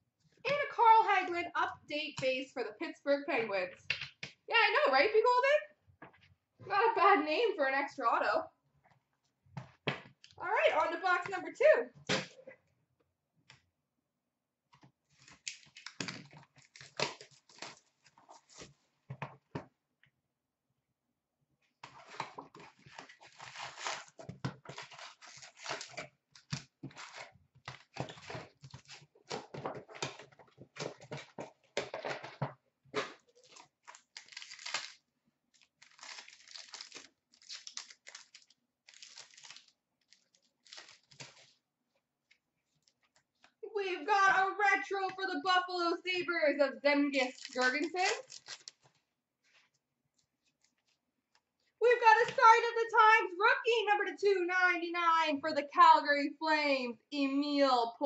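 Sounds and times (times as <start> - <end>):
foil packs tearing and crinkling: 15.2 - 18.6, 22.7 - 29.1, 33.3 - 41.6, 47.2 - 48.9.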